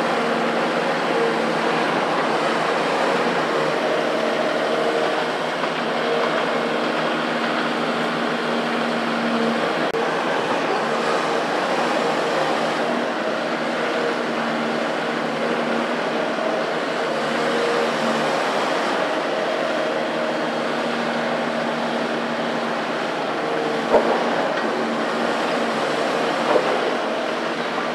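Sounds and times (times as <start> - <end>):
excavator engine and hydraulics: 0.0 - 27.9.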